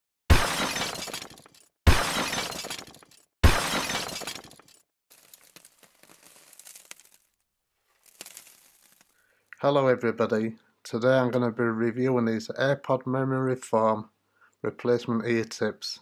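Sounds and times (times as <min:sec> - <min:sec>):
scattered crackle: 0:04.2 - 0:09.2.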